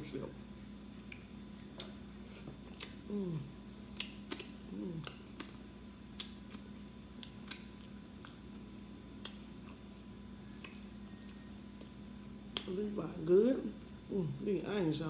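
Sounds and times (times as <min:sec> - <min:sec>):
steady low hum: 0:00.0 - 0:15.0
woman humming: 0:03.0 - 0:03.6, 0:04.7 - 0:05.2.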